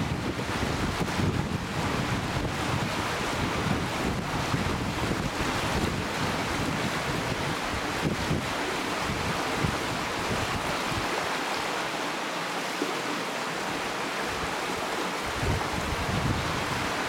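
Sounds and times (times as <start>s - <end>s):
wind buffeting microphone: 0.0s - 11.2s, 15.2s - 17.0s
river water flowing over rocks: 0.0s - 17.0s.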